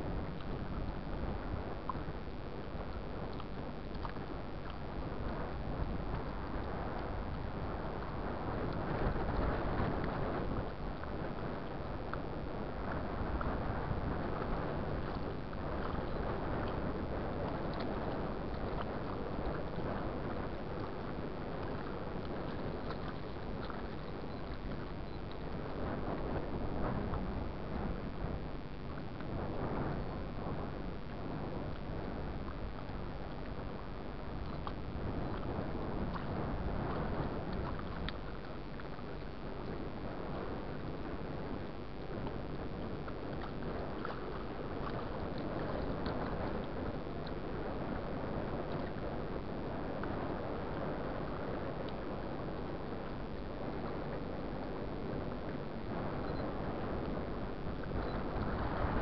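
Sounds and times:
choppy water lapping: 0.0 - 59.0
wind rumbling on microphone: 0.0 - 59.0
small splashes and ticks: 1.8 - 28.0, 30.1 - 53.4.

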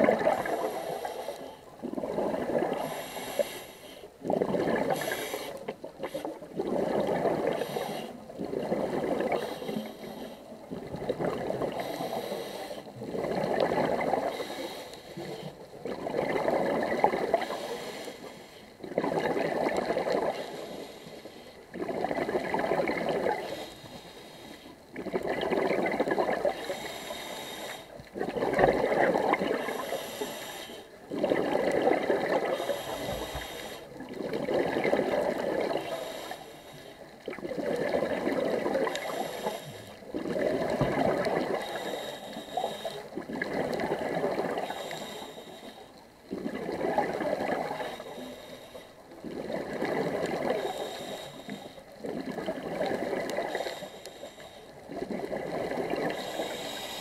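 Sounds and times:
exhaled bubbles rushing: 0.0 - 0.7, 1.8 - 3.0, 4.2 - 5.2, 5.8 - 7.6, 8.3 - 9.5, 10.7 - 11.8, 13.0 - 14.3, 15.8 - 17.6, 18.8 - 20.4, 21.7 - 23.5, 25.0 - 26.6, 28.2 - 29.8, 31.0 - 33.1, 34.0 - 35.9, 37.2 - 39.2, 40.0 - 41.8, 43.1 - 44.7, 46.3 - 48.0, 49.2 - 50.8, 52.0 - 53.6, 54.9 - 56.2
regulator inhale hiss: 0.4 - 1.6, 2.7 - 4.1, 4.9 - 6.4, 7.5 - 8.2, 9.3 - 10.5, 11.7 - 12.9, 14.2 - 15.5, 17.4 - 18.8, 20.3 - 21.6, 23.4 - 24.7, 26.6 - 28.0, 29.6 - 31.0, 32.5 - 34.0, 35.7 - 37.0, 38.9 - 40.0, 41.5 - 43.2, 44.6 - 46.0, 47.7 - 49.0, 50.6 - 51.9, 53.4 - 54.8, 56.0 - 57.0.

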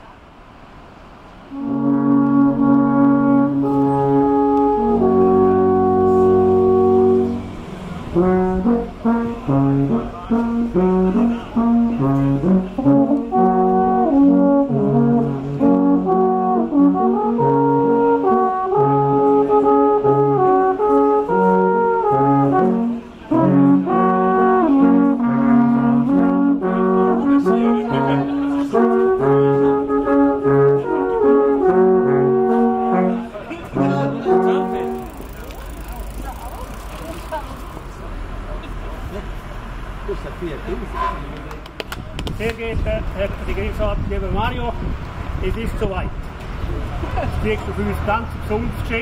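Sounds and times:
alphorns playing in harmony: 1.5 - 36.8.

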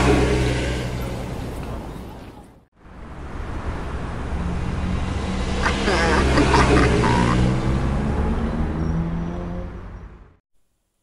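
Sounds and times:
voice-like call: 5.6 - 7.5.

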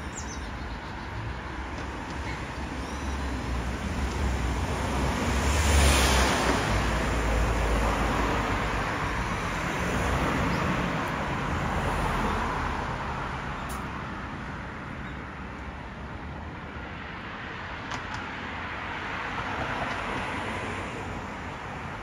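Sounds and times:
vehicle passing by: 4.4 - 13.6.

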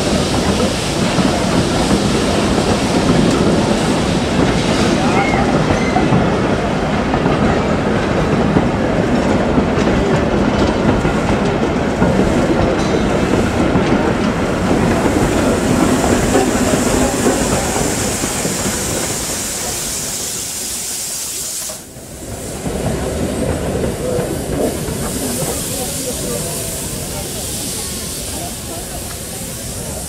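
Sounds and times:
train wheels clattering over rail joints: 0.0 - 20.4
high hiss: 14.5 - 30.0.

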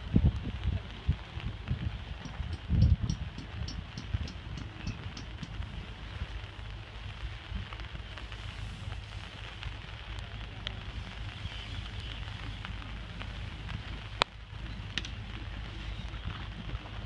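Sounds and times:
light rain pattering: 0.0 - 17.0
low wind rumble: 0.0 - 17.0.

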